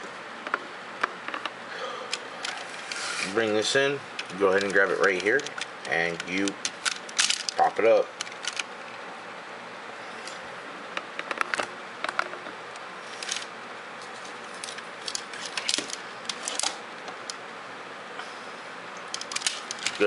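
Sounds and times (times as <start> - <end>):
steady hiss: 1.6 - 8.2
plastic toy parts clicking: 4.2 - 7.6, 8.2 - 8.7, 19.1 - 20.0.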